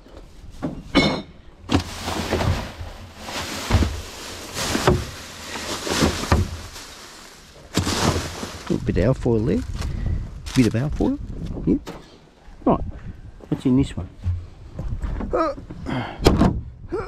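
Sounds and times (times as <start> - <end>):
rubbish knocking and scraping: 0.4 - 11.2, 13.9 - 16.7
plastic bags rustling: 1.7 - 11.1.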